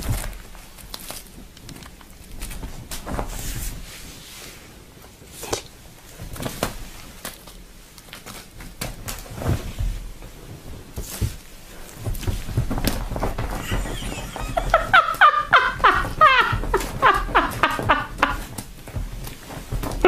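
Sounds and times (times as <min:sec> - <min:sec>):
cat paws thumping on cushion: 0:01.4 - 0:04.2, 0:08.4 - 0:20.0.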